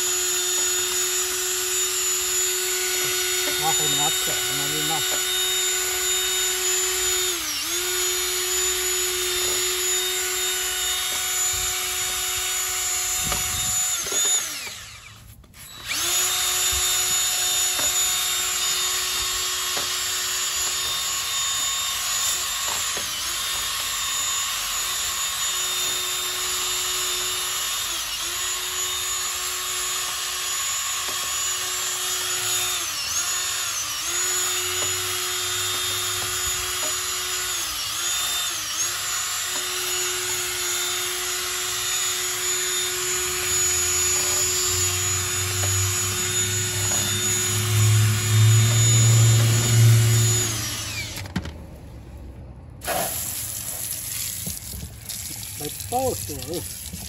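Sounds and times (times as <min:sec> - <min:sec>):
drill motor whining: 0:00.0 - 0:51.5, 0:53.0 - 0:57.0
bristles scrubbing wheel: 0:52.9 - 0:57.0.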